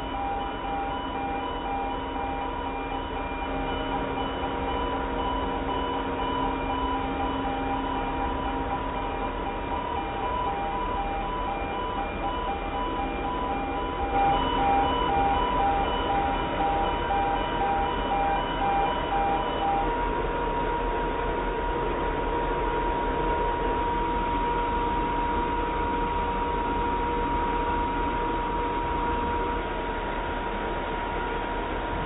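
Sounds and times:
repeating electronic beep: 0:00.0 - 0:19.9
high-pitched machine whine: 0:00.0 - 0:32.0.

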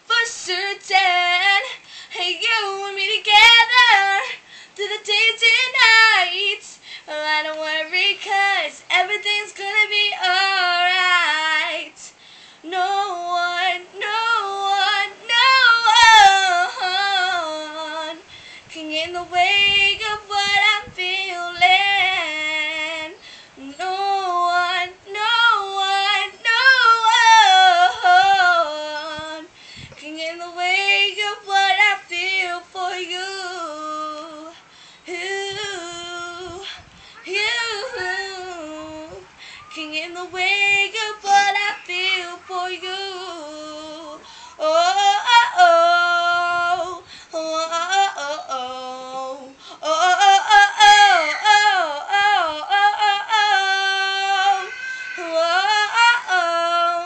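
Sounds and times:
singer breathing: 0:01.8 - 0:02.2, 0:04.4 - 0:04.8, 0:06.7 - 0:07.1, 0:12.1 - 0:12.7, 0:18.2 - 0:18.7, 0:23.2 - 0:23.6, 0:29.5 - 0:30.0, 0:34.6 - 0:35.1, 0:39.3 - 0:39.7, 0:44.2 - 0:44.6, 0:47.0 - 0:47.4
girl singing solo: 0:12.7 - 0:47.1, 0:47.8 - 0:57.0.

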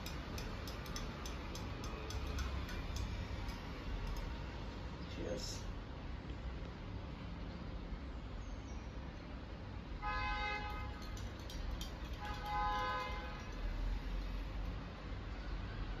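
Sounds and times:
vehicle horn honking: 0:10.0 - 0:10.9, 0:12.3 - 0:13.4.

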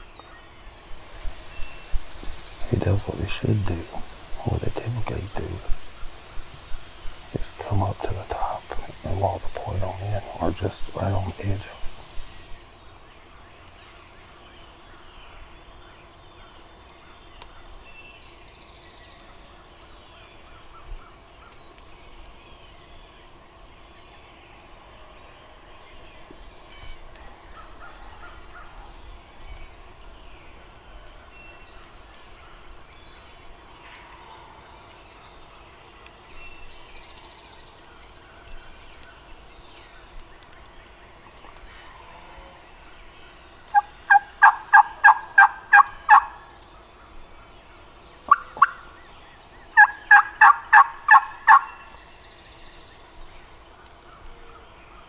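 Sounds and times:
turkey calling: 0:43.7 - 0:46.4, 0:48.3 - 0:48.9, 0:49.8 - 0:51.8.

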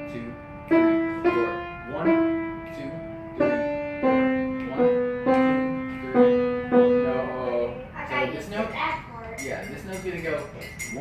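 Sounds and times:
upright piano single notes: 0:00.0 - 0:07.8.

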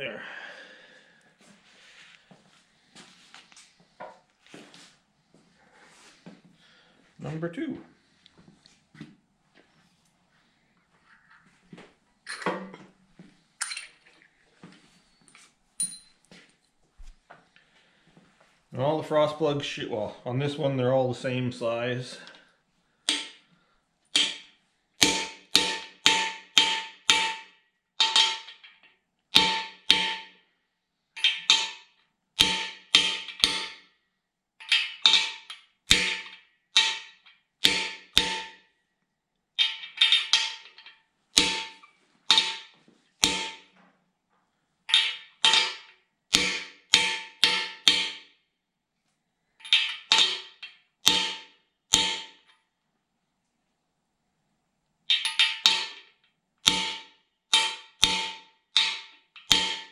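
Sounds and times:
hammer striking metal: 0:23.1 - 0:23.4, 0:24.1 - 0:28.6, 0:29.4 - 0:30.4, 0:31.2 - 0:33.9, 0:34.7 - 0:38.6, 0:41.4 - 0:43.7, 0:44.9 - 0:48.3, 0:49.7 - 0:52.5, 0:55.1 - 0:56.0, 0:56.6 - 0:59.9.

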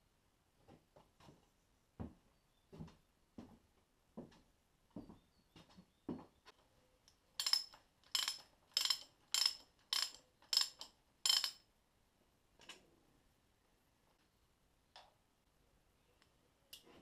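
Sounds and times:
socket ratchet clicking: 0:07.4 - 0:11.6.

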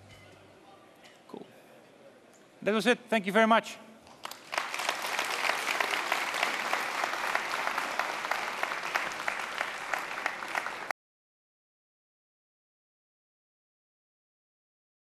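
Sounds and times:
audience applauding: 0:04.1 - 0:10.9.

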